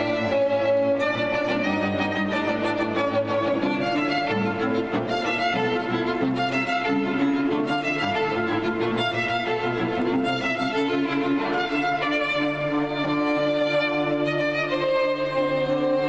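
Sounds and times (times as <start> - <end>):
string ensemble playing classical: 0.0 - 16.0.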